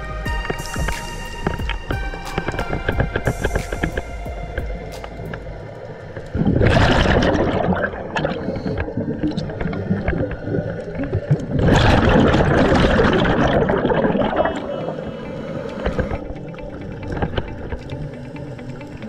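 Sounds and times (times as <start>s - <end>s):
regulator bubbles underwater: 1.7s - 19.0s
diver breathing: 8.2s - 9.3s, 14.6s - 16.9s.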